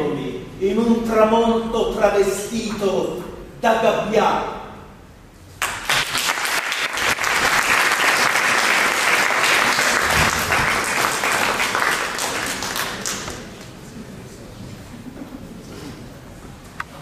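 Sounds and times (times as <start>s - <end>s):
audience applauding: 5.6s - 13.6s.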